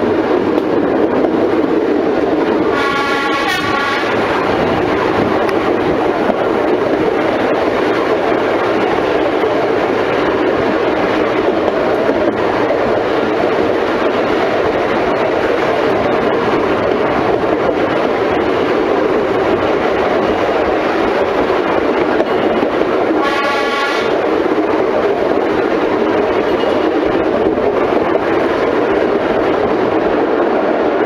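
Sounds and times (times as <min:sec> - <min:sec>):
train wheels on rail: 0:00.0 - 0:31.0
locomotive horn blast: 0:02.7 - 0:04.6, 0:23.2 - 0:24.2.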